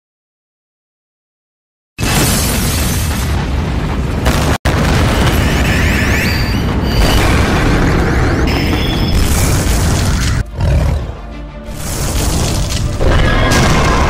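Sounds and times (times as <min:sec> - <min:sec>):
cartoon explosion booming rumble: 0:02.0 - 0:10.4, 0:11.8 - 0:14.0.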